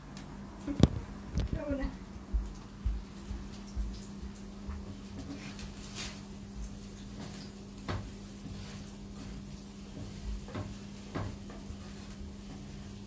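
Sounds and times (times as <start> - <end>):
steady low hum: 0.0 - 13.0
frying pan and utensils knocking: 7.1 - 12.9.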